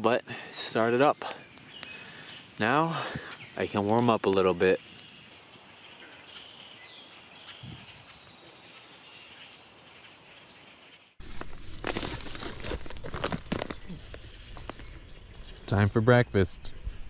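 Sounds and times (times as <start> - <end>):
crackling and rustling: 11.2 - 15.0.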